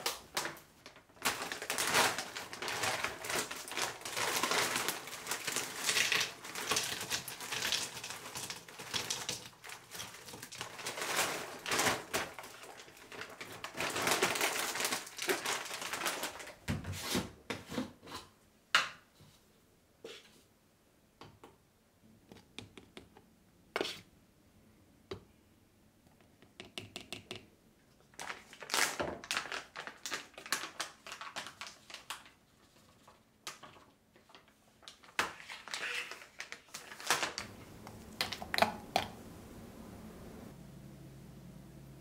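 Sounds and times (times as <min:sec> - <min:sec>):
frozen berries clattering into plastic cup: 0:00.0 - 0:16.6
plastic bags crinkling: 0:00.0 - 0:16.7, 0:28.1 - 0:38.8.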